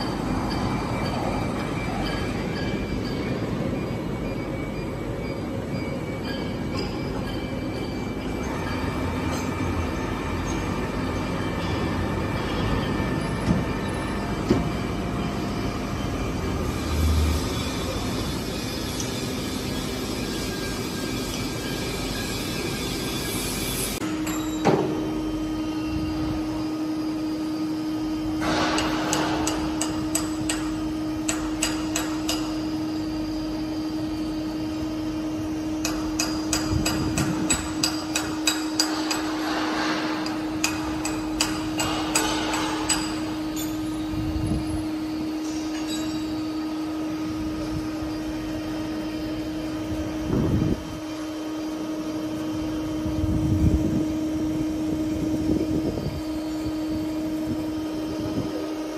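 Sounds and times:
steady hum: 0:00.0 - 0:58.9.

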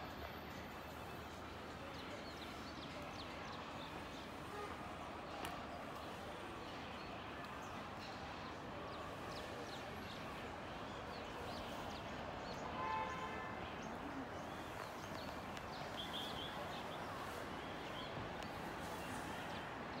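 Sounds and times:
small birds chirping: 0:13.8 - 0:19.3.

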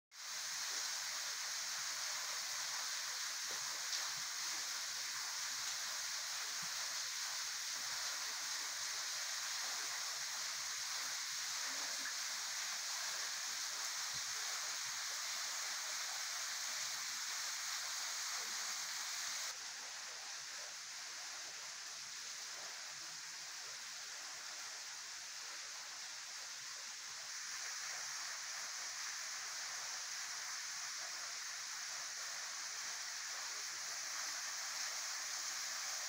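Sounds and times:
small waterfall splashing: 0:00.1 - 0:36.0.

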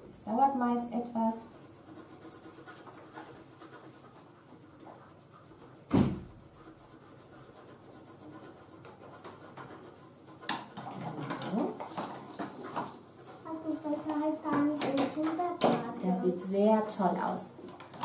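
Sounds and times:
pencils scratching on paper: 0:00.3 - 0:17.5
loud thump: 0:05.9 - 0:06.3.

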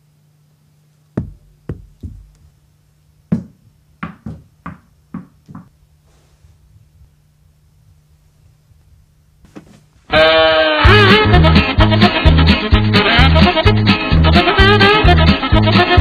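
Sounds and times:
steady low hum: 0:00.0 - 0:11.3.

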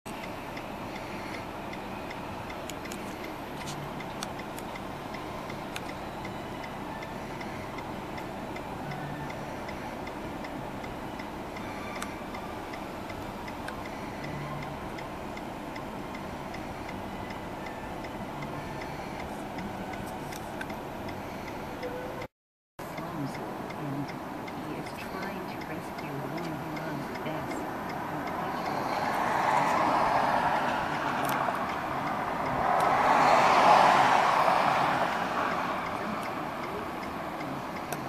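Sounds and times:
sharp clicks: 0:00.1 - 0:06.4
regular ticking: 0:00.1 - 0:38.0
background rumble and hiss: 0:22.8 - 0:29.1.

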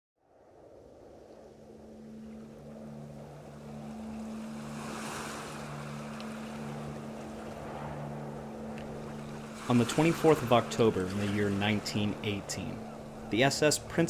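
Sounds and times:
low hum: 0:00.2 - 0:14.0
wind: 0:00.2 - 0:14.0
ocean waves: 0:00.4 - 0:14.0.

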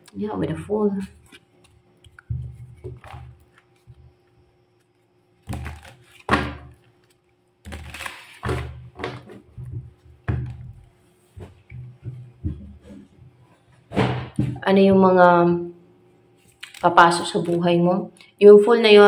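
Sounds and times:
cards being shuffled: 0:06.9 - 0:08.7, 0:16.4 - 0:17.6
cards thumping on wooden table: 0:07.7 - 0:10.7.

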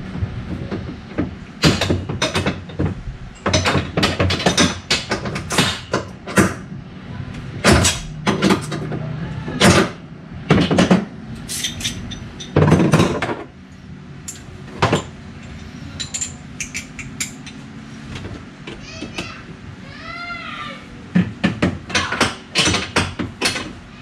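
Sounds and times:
wrench clanking on metal: 0:10.5 - 0:13.2, 0:14.3 - 0:17.6, 0:21.9 - 0:23.8.

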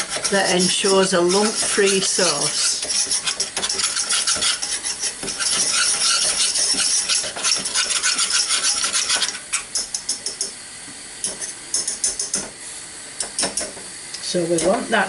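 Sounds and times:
whisk scraping a saucepan: 0:00.0 - 0:10.4.

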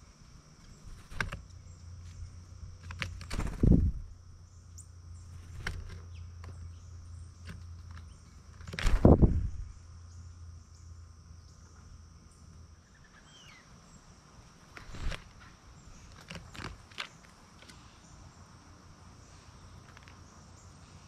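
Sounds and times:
insects droning: 0:00.0 - 0:21.0
bird call: 0:12.8 - 0:13.7.

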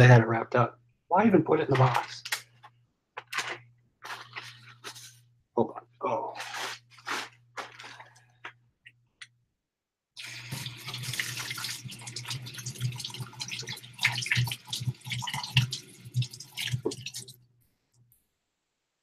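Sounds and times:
hands rinsing under water: 0:10.2 - 0:17.3
tap water running into sink: 0:10.2 - 0:17.4.

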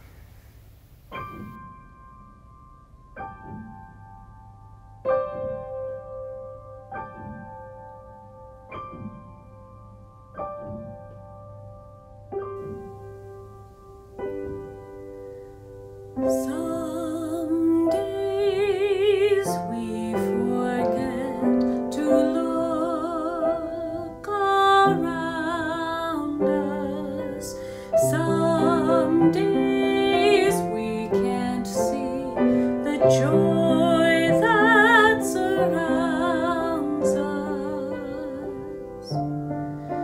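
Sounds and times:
piano accompaniment: 0:00.0 - 0:40.0
woman singing with vibrato: 0:16.2 - 0:39.2.

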